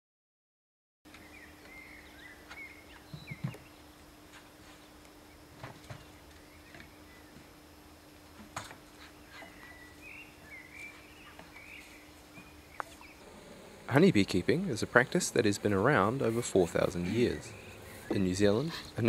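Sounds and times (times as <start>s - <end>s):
birds chirping and calling: 1.1s - 3.9s, 5.3s - 7.5s, 9.0s - 19.0s
steady low hum: 1.1s - 19.0s.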